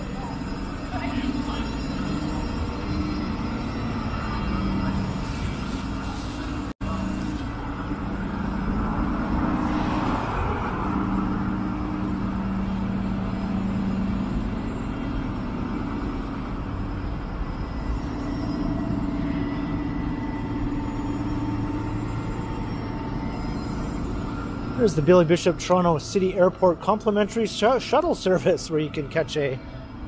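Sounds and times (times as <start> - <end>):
vehicle passing: 8.4 - 14.4.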